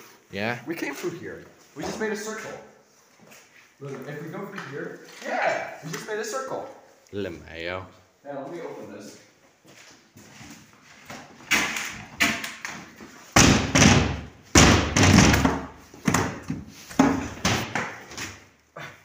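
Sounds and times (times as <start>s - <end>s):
door banging and rattling in frame: 13.4s - 16.4s.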